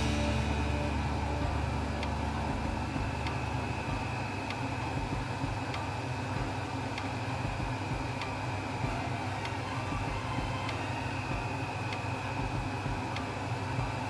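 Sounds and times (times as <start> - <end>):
wok steaming on gas burner: 0.0 - 2.5.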